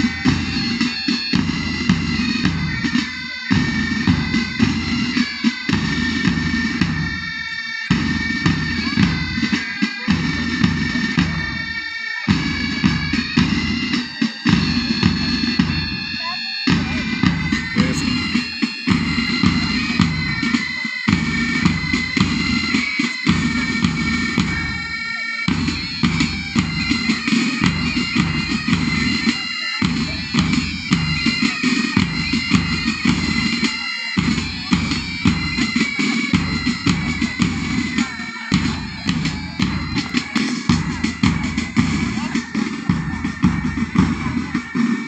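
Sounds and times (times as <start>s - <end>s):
marching music: 0.0s - 45.0s
steady drum beat: 0.0s - 45.0s.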